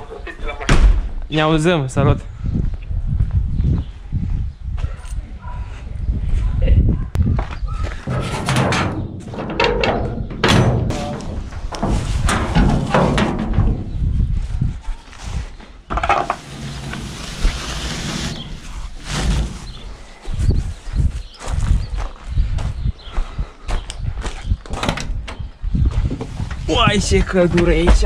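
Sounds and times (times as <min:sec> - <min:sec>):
gate scraping rush: 0:08.0 - 0:14.0, 0:16.0 - 0:20.1
metal gate thunks and knocks: 0:08.0 - 0:14.0.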